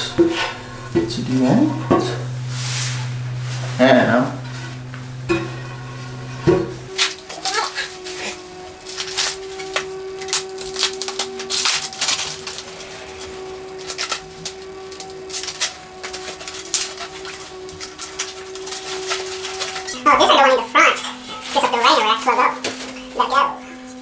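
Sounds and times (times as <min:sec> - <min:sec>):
plastic packaging crinkling: 0:06.9 - 0:23.3.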